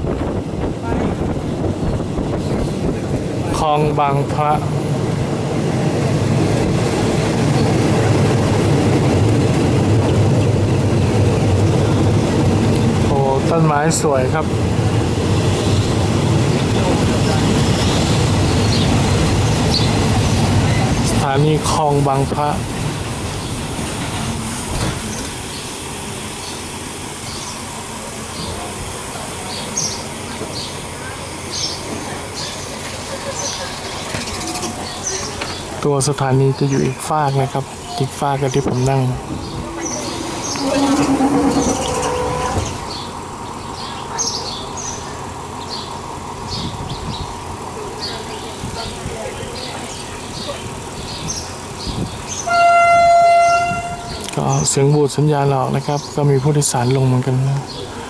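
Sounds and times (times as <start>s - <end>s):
train wheels rumbling on rails: 0.0s - 58.0s
bird chirps: 37.8s - 47.2s
low drone: 38.4s - 43.8s.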